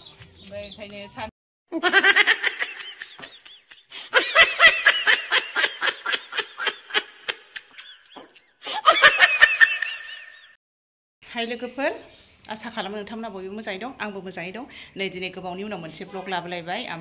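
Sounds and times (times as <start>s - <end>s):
high-pitched laughing: 1.7s - 10.5s.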